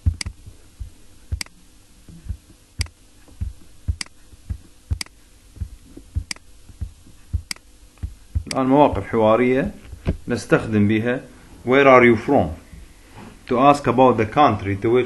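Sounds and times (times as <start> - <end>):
sharp clicks: 0.0 - 0.5, 1.3 - 8.7
soft low thumps: 0.0 - 10.4.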